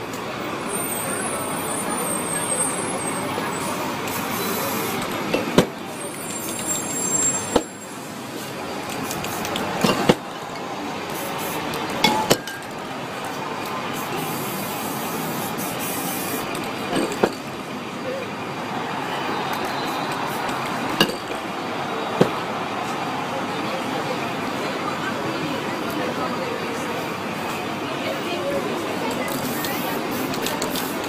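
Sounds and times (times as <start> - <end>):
street traffic: 0.0 - 31.0
spray paint hissing: 3.1 - 5.3, 6.0 - 10.0, 11.0 - 12.0, 13.7 - 16.8, 19.4 - 20.9, 29.1 - 31.0.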